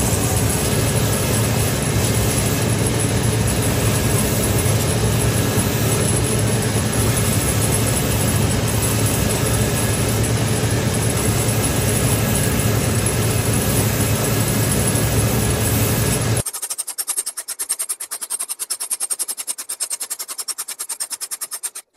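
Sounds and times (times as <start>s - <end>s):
sanding machine grinding whir: 0.0s - 21.9s
stitching machine clatter: 16.4s - 21.9s.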